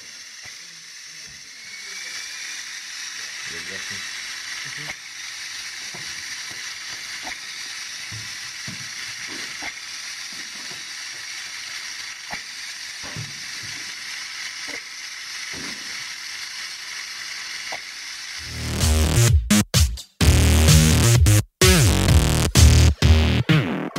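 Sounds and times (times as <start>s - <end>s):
flywheel launcher whirring: 0.0s - 18.5s.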